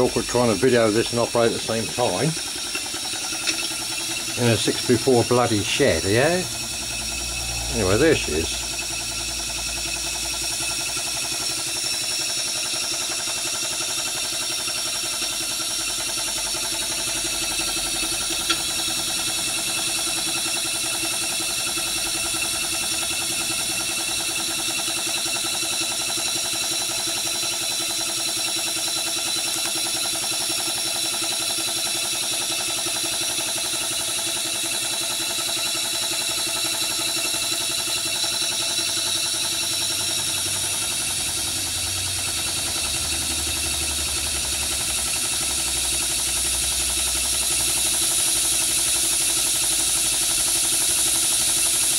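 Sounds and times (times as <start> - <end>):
steam engine beating: 0.0 - 12.6
steam and gas burner hissing: 0.0 - 51.9
sharp click: 2.7 - 3.8.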